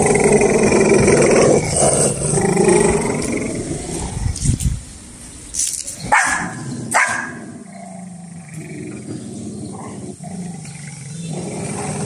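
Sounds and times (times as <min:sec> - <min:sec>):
dog growling: 0:00.0 - 0:04.4, 0:06.6 - 0:12.0
small dogs barking: 0:06.0 - 0:07.6.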